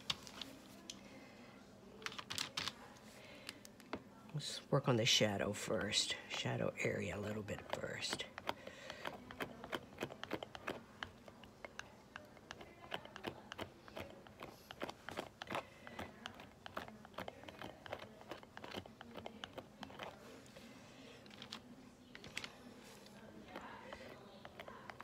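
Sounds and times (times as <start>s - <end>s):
palette knife tapping and scraping: 5.7s - 20.7s, 21.3s - 25.0s.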